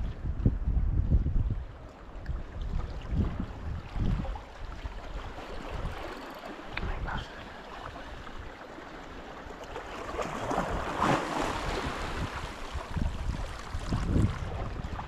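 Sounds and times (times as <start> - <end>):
wind on the microphone: 0.0 - 8.6, 10.2 - 15.0
waves washing against rocks: 9.1 - 15.0.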